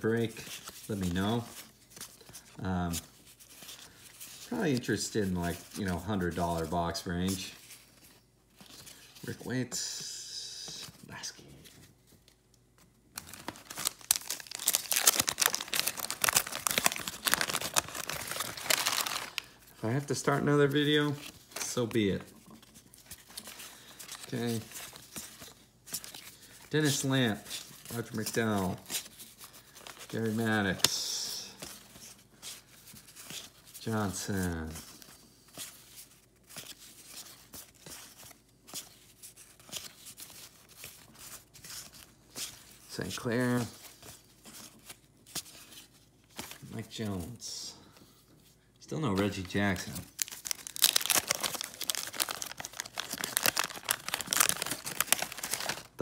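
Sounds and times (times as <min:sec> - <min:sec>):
wax paper wrapper tearing crinkling: 0:13.1 - 0:22.6, 0:49.2 - 0:56.0.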